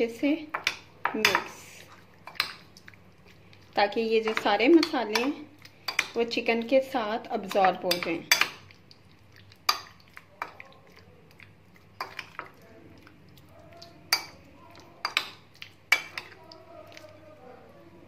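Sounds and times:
metal spoon stirring in glass bowl: 3.7 - 6.4, 7.3 - 17.3.

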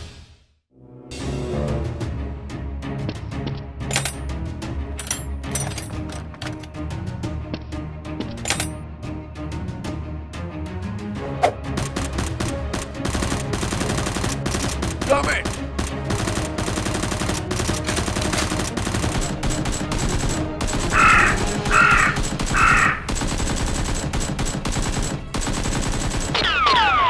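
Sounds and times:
rapid gunfire: 11.7 - 27.0.

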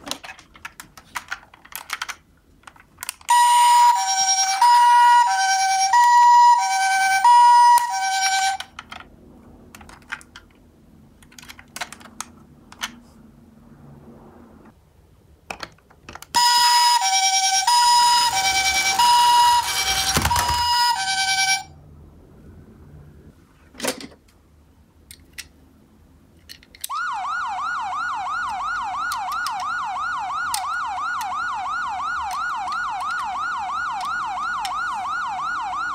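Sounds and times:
plastic toy clicks: 0.0 - 3.3, 7.7 - 9.1, 9.7 - 10.6, 11.2 - 13.0, 28.5 - 29.8, 32.2 - 34.8
toy siren two-tone call: 3.3 - 8.7, 16.4 - 21.7, 26.9 - 35.9.

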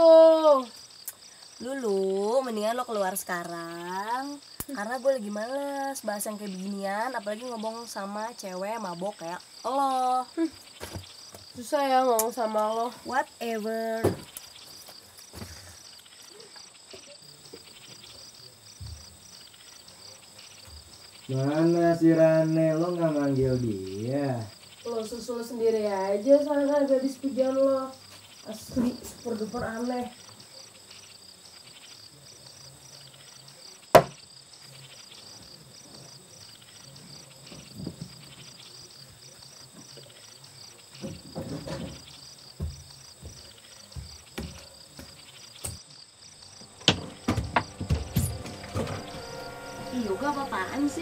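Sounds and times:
crickets chirping: 0.0 - 51.0
sharp knock: 34.0 - 34.2
low hum: 46.5 - 51.0.

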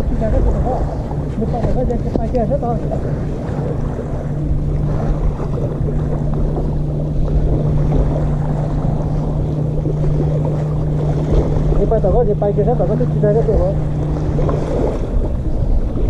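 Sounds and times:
steady low hum: 0.0 - 16.0
wind buffeting microphone: 0.0 - 16.0.

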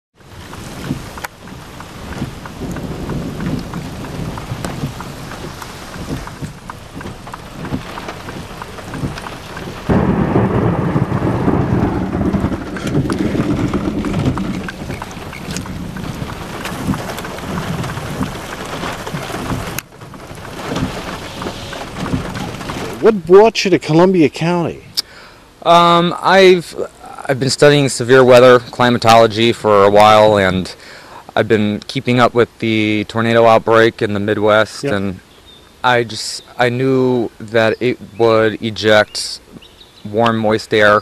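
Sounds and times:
low thunder rumbling: 0.2 - 24.1
rain and wind on microphone: 0.2 - 41.0.

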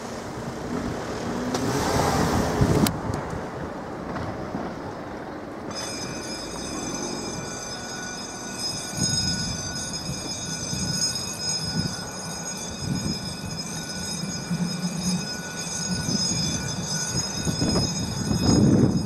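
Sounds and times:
train low rumble: 0.0 - 19.0
train high whine: 4.7 - 19.0.

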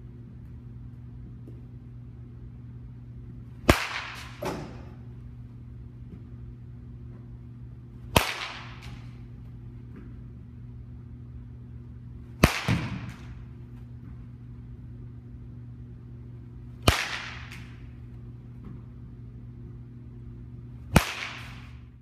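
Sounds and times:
steady low hum: 0.0 - 22.0
bat cracking ball: 3.6 - 5.0, 8.0 - 9.2, 12.3 - 13.6, 16.8 - 18.0, 20.9 - 21.9.

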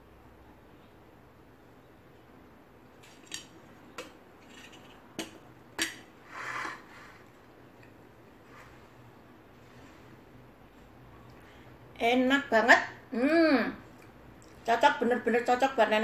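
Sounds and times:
spoon scraping dish: 4.4 - 5.0, 5.8 - 7.4.

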